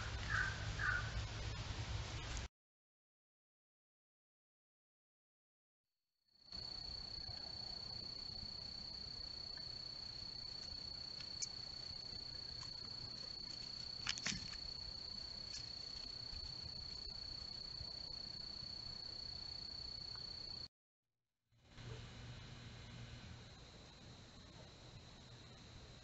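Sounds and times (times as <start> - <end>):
cricket trilling: 6.5 - 20.7.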